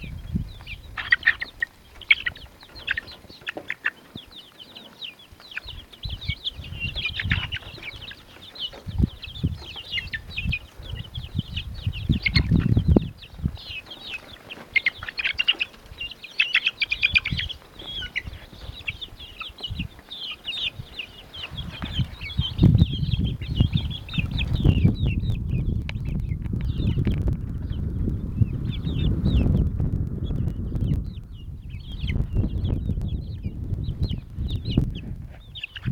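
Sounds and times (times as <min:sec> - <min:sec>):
chicks peeping and cheeping: 0:00.0 - 0:35.9.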